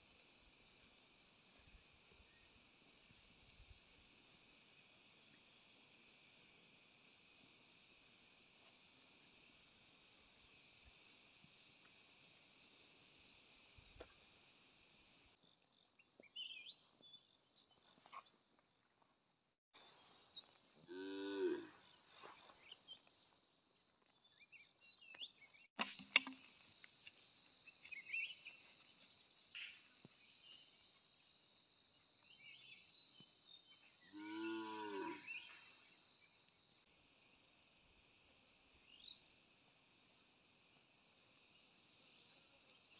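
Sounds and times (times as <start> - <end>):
insects chirring: 0.0 - 42.9.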